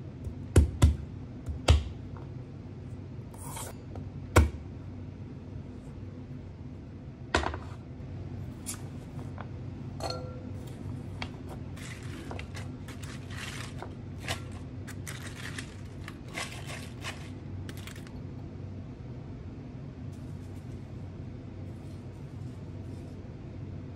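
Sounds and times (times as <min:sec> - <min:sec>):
glass clink: 0:10.0 - 0:10.6
cabbage leaves rustling and crackling: 0:11.8 - 0:18.1.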